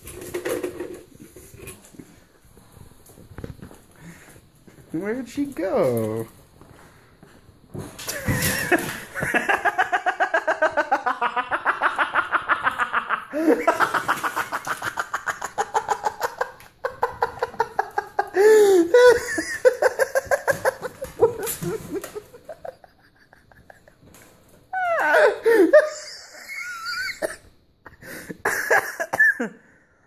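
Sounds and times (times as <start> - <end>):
person laughing hard: 8.1 - 24.1, 24.8 - 29.6.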